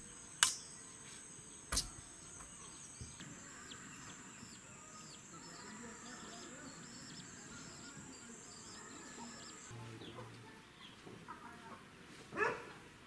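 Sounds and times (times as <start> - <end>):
high insect drone: 0.0 - 9.7.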